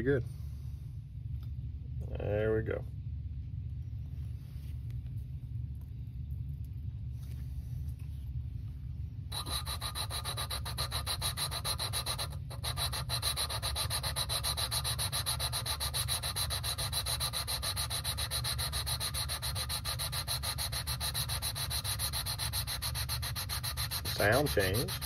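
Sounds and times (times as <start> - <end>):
valve lapping grinding rub: 9.3 - 25.0.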